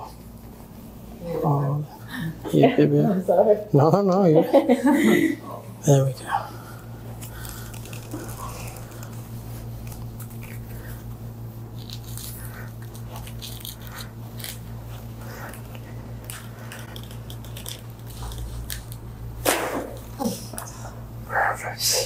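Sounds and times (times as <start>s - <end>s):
steady low hum: 0.0s - 22.0s
neck cracking: 7.2s - 10.7s.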